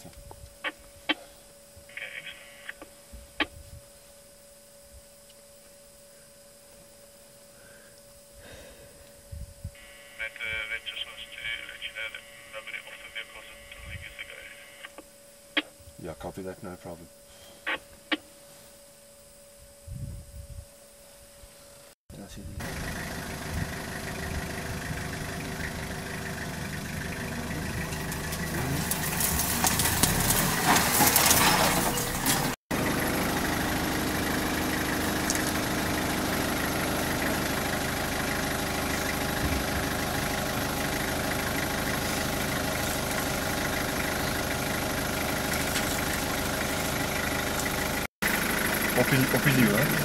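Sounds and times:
vehicle engine idling: 0:22.4 - 0:50.0.

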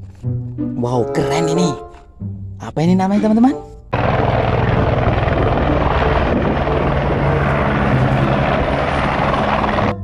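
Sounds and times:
helicopter engine hum: 0:03.9 - 0:10.0
helicopter rotor beating: 0:03.9 - 0:10.0.

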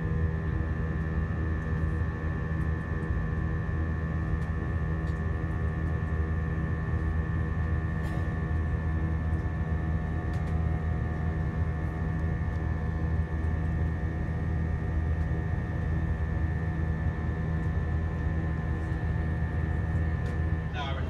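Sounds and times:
aircraft cabin drone: 0:00.0 - 0:21.0
thin steady whine: 0:09.0 - 0:21.0.

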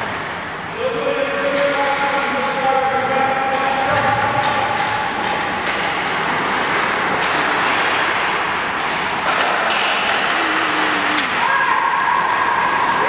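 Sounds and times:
indoor ice rink noise: 0:00.0 - 0:13.0
skate blades scraping ice: 0:05.1 - 0:11.3.

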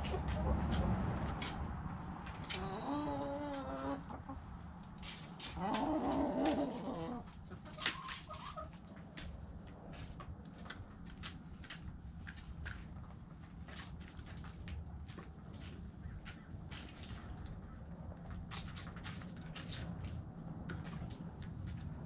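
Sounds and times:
chicken clucks: 0:00.0 - 0:01.6, 0:02.3 - 0:10.2.

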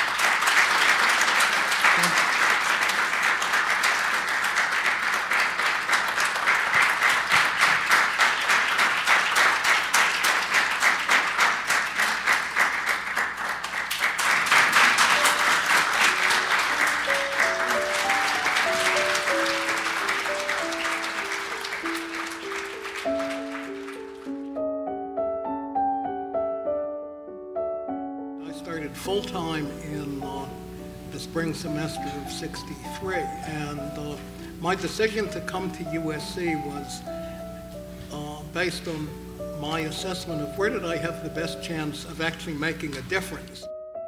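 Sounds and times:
audience applauding: 0:00.0 - 0:24.6
slow piano melody: 0:00.0 - 0:44.0.

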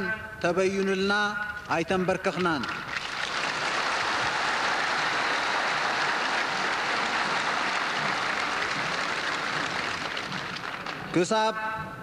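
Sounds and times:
crowd applauding: 0:02.9 - 0:11.3.

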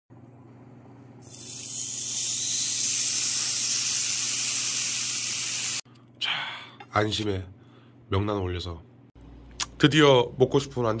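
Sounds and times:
steak sizzling on grill pan: 0:01.3 - 0:05.8.

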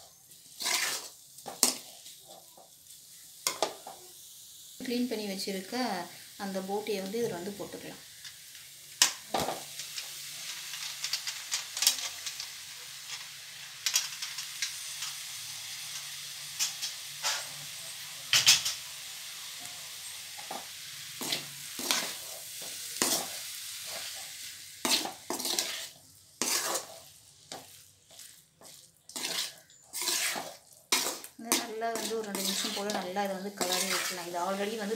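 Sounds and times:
food sizzling in hot oil: 0:00.0 - 0:34.9
metal spatula scraping pan: 0:00.5 - 0:01.9, 0:21.2 - 0:34.9.

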